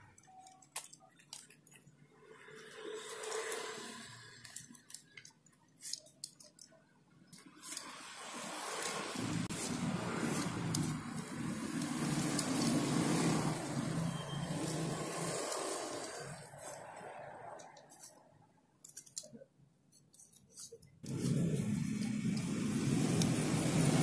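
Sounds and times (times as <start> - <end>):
knife cutting foam: 7.4 - 18.2, 19.9 - 24.0.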